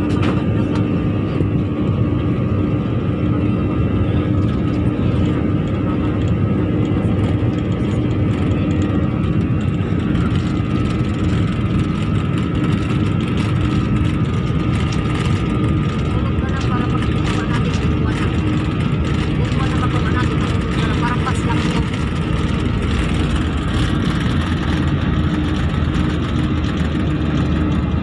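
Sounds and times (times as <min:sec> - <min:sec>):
jet engines humming in cabin: 0:00.0 - 0:28.0.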